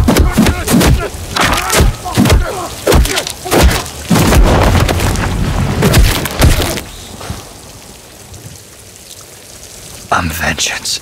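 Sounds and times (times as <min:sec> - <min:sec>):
punches and body impacts: 0:00.0 - 0:05.1.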